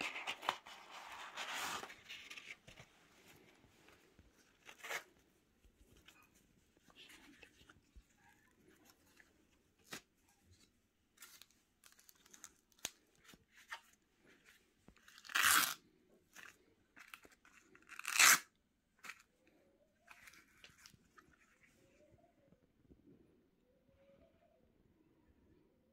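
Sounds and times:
velcro straps ripping apart: 0:15.1 - 0:15.8, 0:17.8 - 0:18.5.

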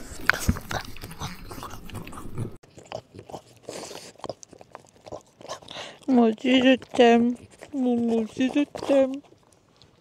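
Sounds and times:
dog licking and sniffing: 0:00.0 - 0:10.0.

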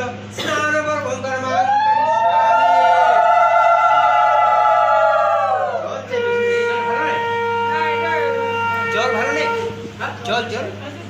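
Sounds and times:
conch shell blown: 0:06.0 - 0:10.0.

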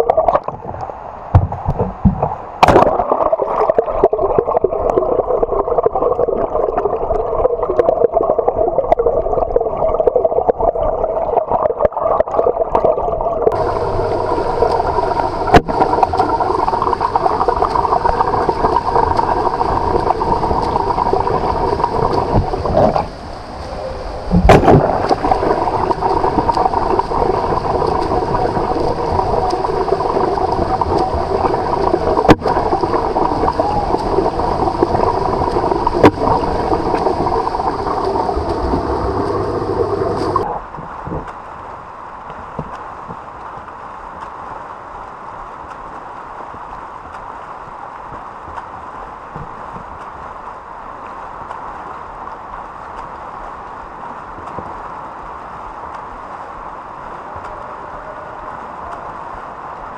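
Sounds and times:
muffled underwater churning and bubbling: 0:00.0 - 0:41.6
sharp knocks: 0:01.4 - 0:02.9.

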